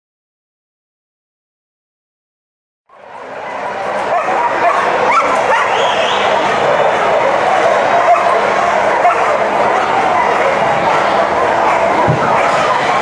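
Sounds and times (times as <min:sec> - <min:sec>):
many dogs barking and yipping: 0:03.1 - 0:13.0.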